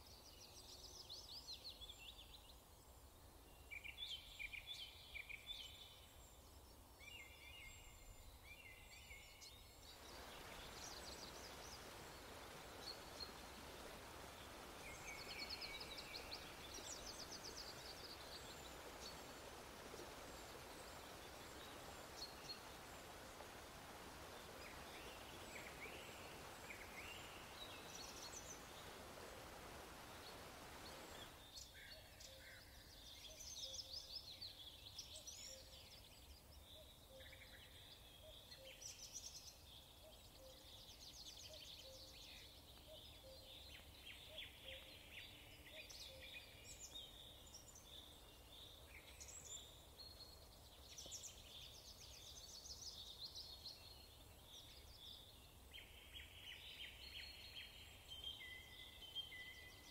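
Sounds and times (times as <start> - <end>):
steady hiss: 8.0 - 31.9.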